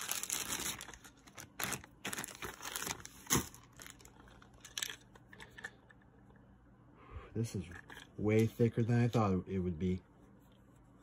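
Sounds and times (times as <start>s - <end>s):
plastic bag crinkling: 0.0s - 5.7s.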